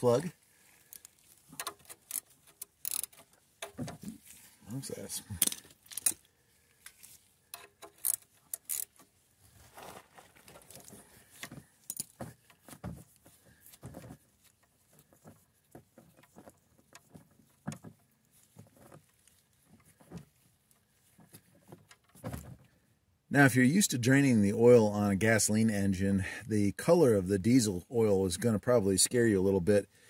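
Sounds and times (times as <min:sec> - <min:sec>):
wrench clicking on metal: 0:01.6 - 0:03.2, 0:07.5 - 0:09.0.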